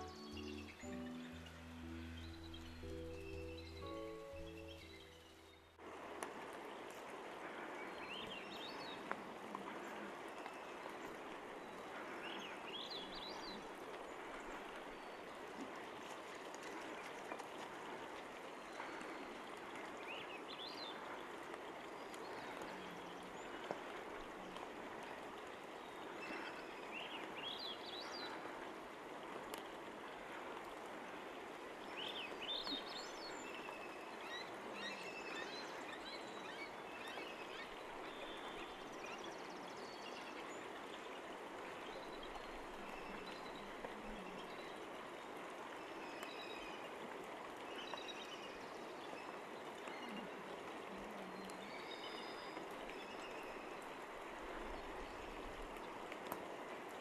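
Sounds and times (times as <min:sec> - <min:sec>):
high rising bird calls: 0:00.0 - 0:05.8
running water: 0:00.0 - 0:57.0.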